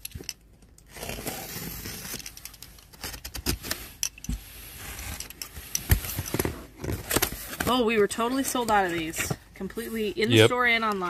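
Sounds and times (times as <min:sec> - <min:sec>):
cardboard rubbing and scraping: 0:00.9 - 0:02.2, 0:03.0 - 0:09.4
boxes knocking and rattling: 0:05.8 - 0:09.5.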